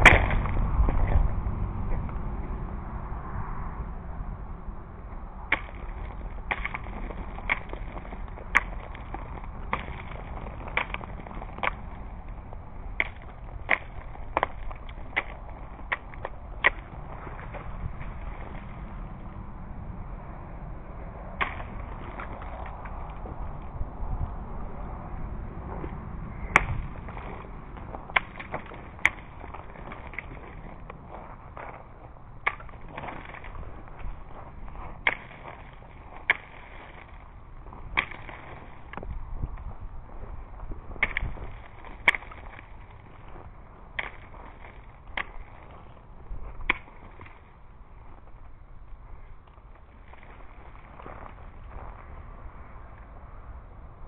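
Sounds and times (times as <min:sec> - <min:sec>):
ice-laden branches snapping: 0:00.0 - 0:00.6, 0:05.5 - 0:18.8, 0:21.4 - 0:23.4, 0:26.5 - 0:31.0, 0:32.4 - 0:34.2, 0:35.0 - 0:39.6, 0:41.0 - 0:43.0, 0:43.9 - 0:45.8, 0:46.6 - 0:47.4
steady low background noise: 0:00.0 - 0:54.0.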